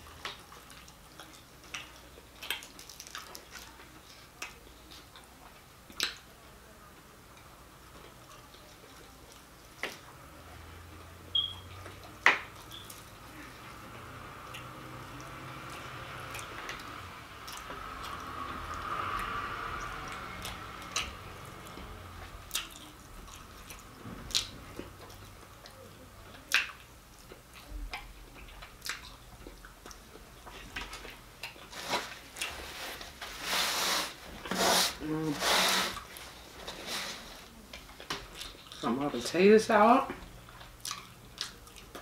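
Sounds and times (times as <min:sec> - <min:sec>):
person chewing food: 0:00.0 - 0:05.3, 0:14.4 - 0:33.4, 0:36.0 - 0:38.8, 0:40.3 - 0:42.0
rustling: 0:31.6 - 0:37.6.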